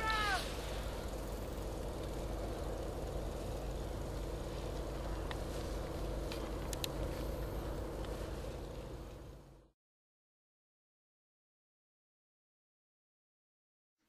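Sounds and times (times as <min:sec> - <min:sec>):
outdoor background rumble: 0:00.0 - 0:09.8.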